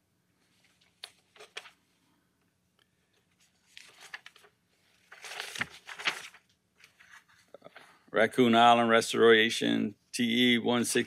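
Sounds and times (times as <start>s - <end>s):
paper rustling: 0.5s - 1.8s, 3.3s - 8.0s.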